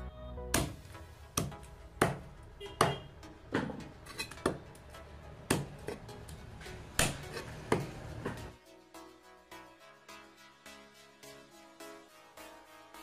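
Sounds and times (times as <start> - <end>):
cleaver chopping on wooden block: 1.4 - 2.2, 3.6 - 4.6, 5.5 - 6.0, 7.0 - 7.9.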